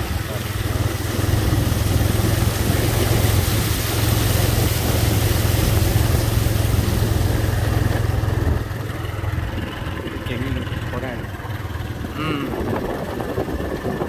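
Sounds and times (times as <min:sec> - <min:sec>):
water rushing hiss: 0:00.0 - 0:11.0
motorcycle engine running: 0:00.0 - 0:14.0.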